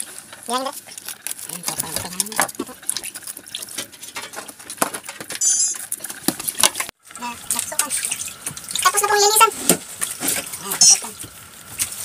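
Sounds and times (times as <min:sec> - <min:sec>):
fish being rubbed and rinsed: 0:00.0 - 0:04.8, 0:07.3 - 0:12.0.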